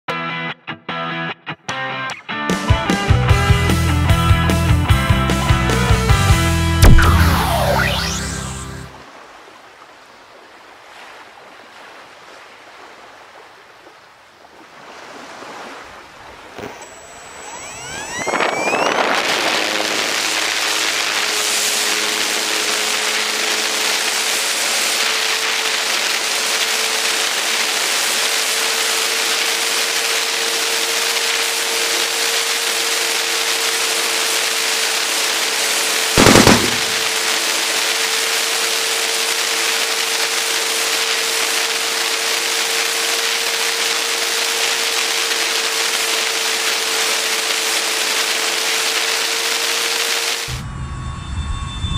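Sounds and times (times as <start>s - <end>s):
loud crackle: 6.8s - 8.6s, 36.2s - 37.8s
model plane motor whining: 16.3s - 50.6s.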